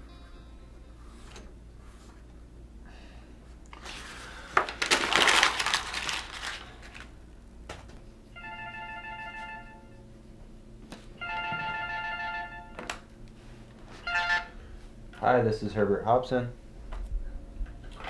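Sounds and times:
phone ringtone: 0:08.4 - 0:10.0, 0:11.2 - 0:12.9, 0:14.0 - 0:14.6.

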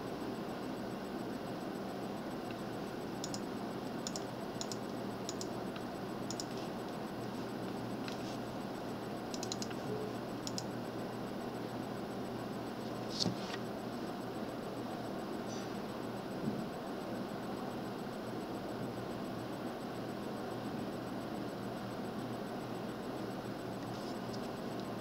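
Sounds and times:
computer key or mouse clicks: 0:09.4 - 0:09.8.

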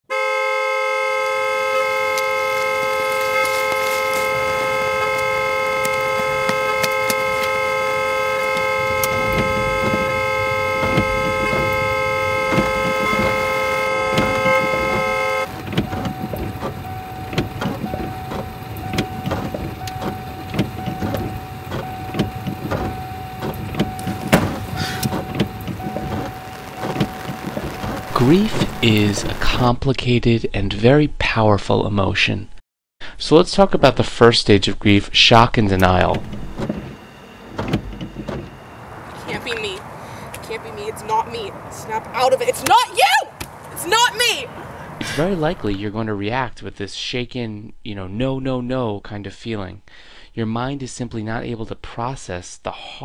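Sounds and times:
car horn long note: 0:00.1 - 0:15.6, 0:20.8 - 0:29.6
rain falling: 0:15.5 - 0:29.6.

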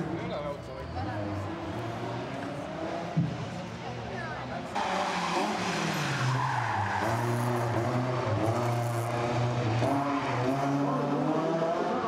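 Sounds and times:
tyres skidding on concrete: 0:04.8 - 0:10.6.

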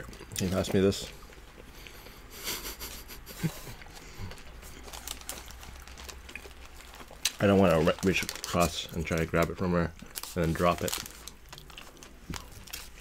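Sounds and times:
chewing mouth sounds: 0:00.0 - 0:07.4
paper wrapper crinkling: 0:03.9 - 0:13.0.

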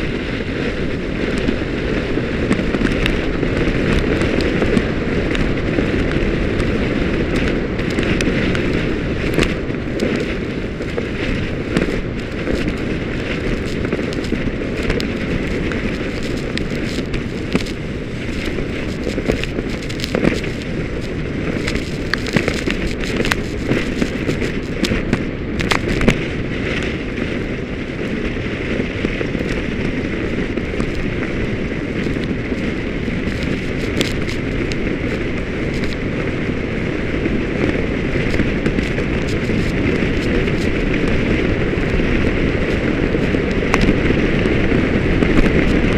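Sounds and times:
wind buffeting microphone: 0:00.0 - 0:45.9
sharp ticks: 0:07.3 - 0:26.2, 0:32.0 - 0:36.0.

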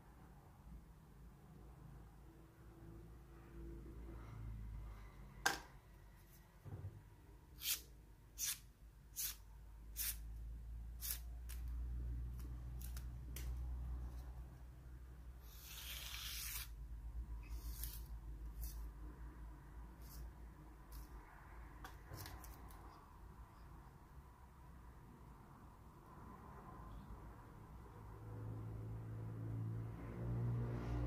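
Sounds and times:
knife blade slicing paper: 0:07.6 - 0:09.4, 0:15.4 - 0:16.8, 0:17.4 - 0:18.8.

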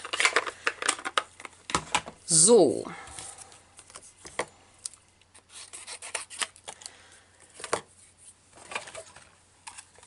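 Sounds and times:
cardstock rubbing and scraping: 0:05.4 - 0:06.5.

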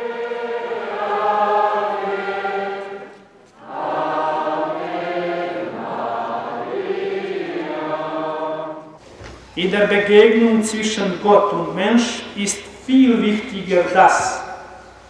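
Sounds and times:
group singing a hymn: 0:00.0 - 0:09.0.

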